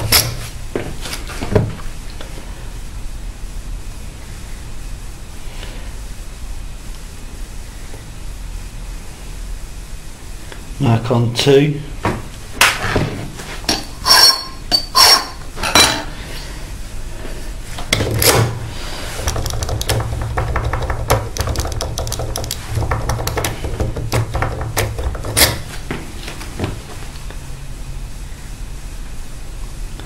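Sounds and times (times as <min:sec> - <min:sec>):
metal tools clinking: 0:13.7 - 0:16.0.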